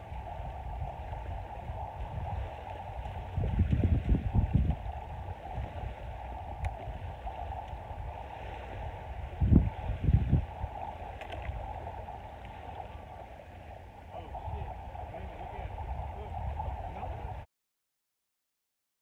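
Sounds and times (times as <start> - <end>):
light surf on beach: 0.0 - 17.4
steady rush of wind: 0.0 - 17.5
wind buffeting microphone: 0.0 - 17.5.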